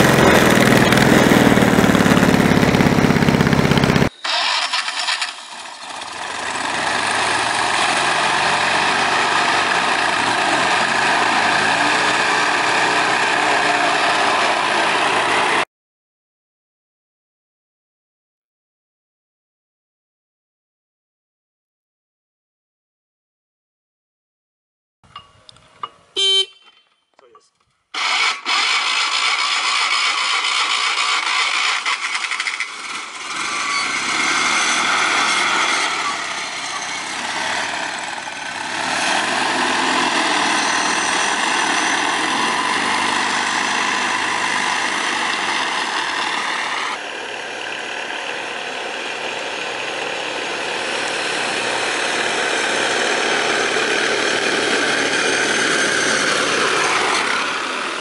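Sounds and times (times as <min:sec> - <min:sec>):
scooter engine running loudly: 0:00.0 - 0:15.6, 0:28.0 - 0:58.0.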